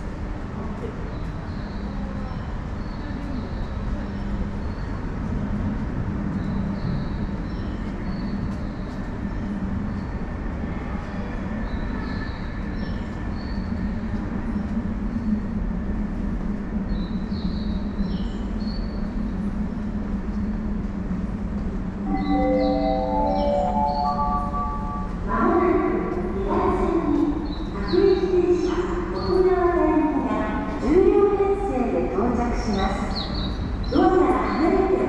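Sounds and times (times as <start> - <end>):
subway station rumble and hum: 0.0 - 35.0
short high chirps: 22.1 - 25.2.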